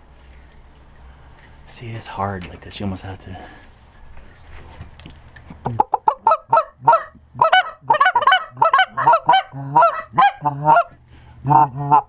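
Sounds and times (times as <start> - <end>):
goose call honks and clucks: 5.7 - 12.0.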